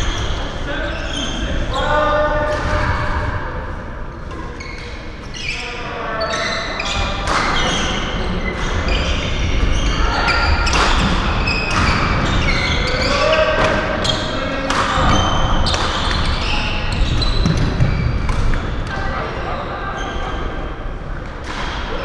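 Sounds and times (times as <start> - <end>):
shoes squeaking on court: 15.2 - 18.9.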